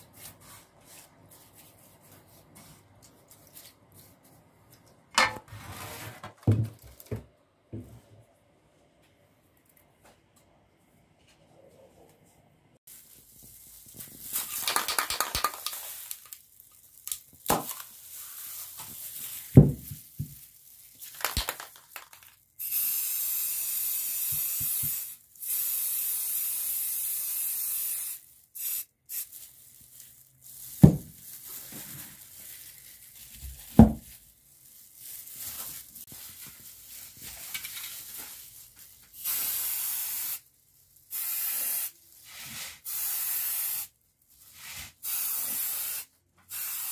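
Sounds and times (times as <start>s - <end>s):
spray paint can hissing: 13.1s - 16.4s, 21.1s - 29.4s, 39.2s - 40.5s, 41.1s - 43.9s, 44.6s - 46.9s.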